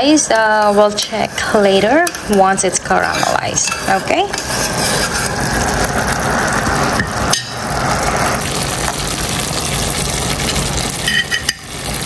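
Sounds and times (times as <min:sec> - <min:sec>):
spoon stirring against pan: 0:00.0 - 0:06.2, 0:10.4 - 0:11.7
syrup sizzling and bubbling: 0:00.0 - 0:12.0.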